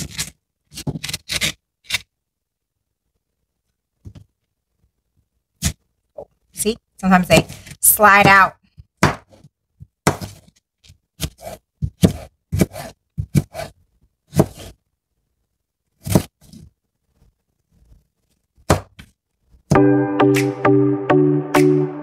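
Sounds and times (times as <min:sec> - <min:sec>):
knife chopping on cutting board: 0:09.0 - 0:10.4, 0:11.2 - 0:13.7, 0:14.3 - 0:14.7, 0:16.0 - 0:16.3
music: 0:19.7 - 0:22.0.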